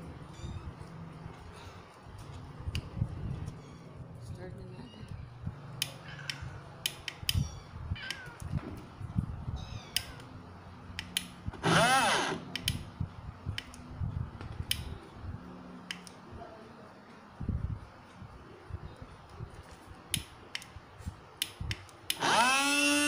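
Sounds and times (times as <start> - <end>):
cat meowing: 9.5 - 10.3.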